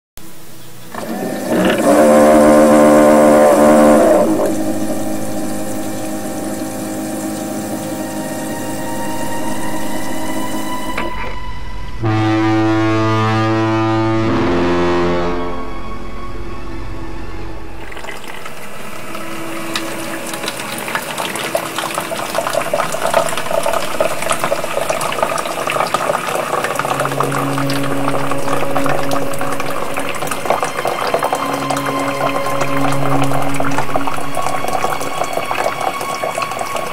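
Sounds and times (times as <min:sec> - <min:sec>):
coffee maker low drone: 0:00.2 - 0:36.9
coffee maker steady hum: 0:00.9 - 0:11.1.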